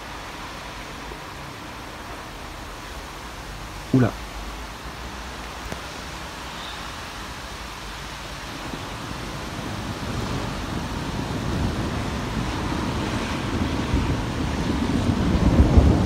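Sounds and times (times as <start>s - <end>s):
distant thunder rumbling: 8.5s - 16.0s.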